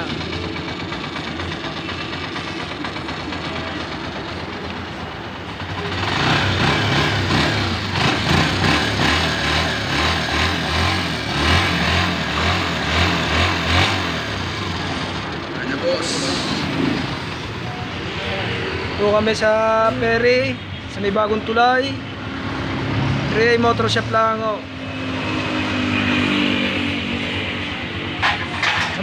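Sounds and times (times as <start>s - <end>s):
motorcycle engine idling: 0.0s - 11.4s, 14.0s - 18.2s.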